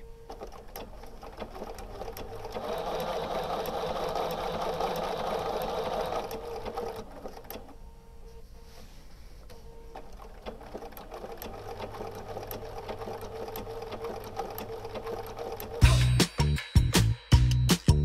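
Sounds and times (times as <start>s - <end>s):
sewing machine whirring: 0.0s - 7.8s, 9.9s - 15.9s.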